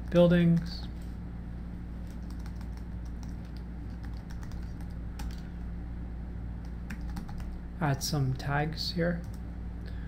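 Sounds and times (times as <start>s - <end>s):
low electrical hum: 0.0s - 10.0s
keyboard keys clicking: 2.1s - 5.4s, 6.6s - 7.6s.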